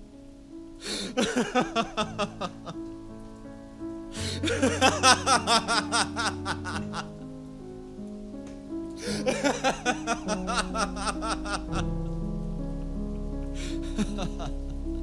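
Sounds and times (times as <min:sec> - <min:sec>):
low background music: 0:00.0 - 0:15.0
man laughing in a cackle: 0:01.2 - 0:02.8, 0:04.4 - 0:07.1, 0:09.0 - 0:11.8, 0:13.8 - 0:14.6.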